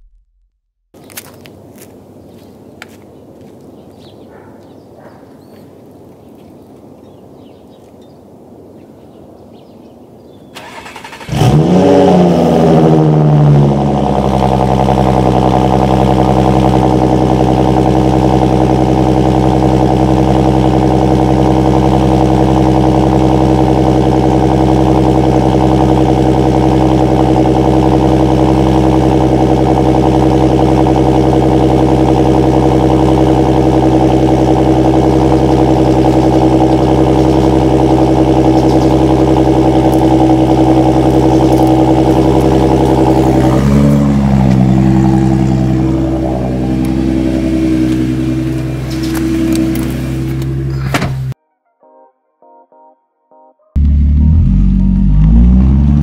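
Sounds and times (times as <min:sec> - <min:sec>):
car engine starting and idling: 0:10.5 - 0:51.4, 0:53.8 - 0:56.0.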